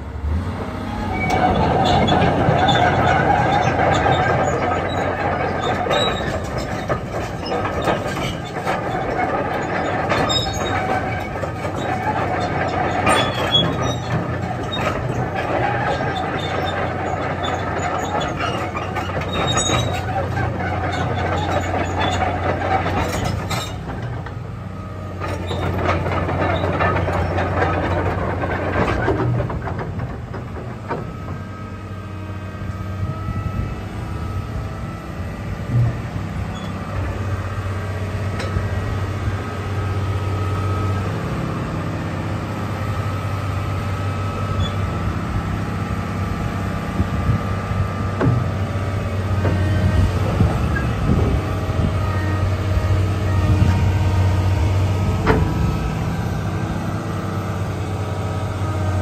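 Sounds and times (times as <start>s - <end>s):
excavator diesel engine running: 0.0s - 59.0s
machine squealing and rattling: 0.8s - 59.0s.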